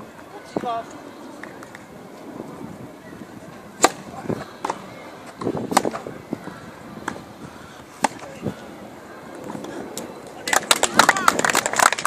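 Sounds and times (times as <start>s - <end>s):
voices murmuring: 0.0s - 11.9s
tennis ball struck by rackets: 3.8s - 6.1s, 8.0s - 8.4s.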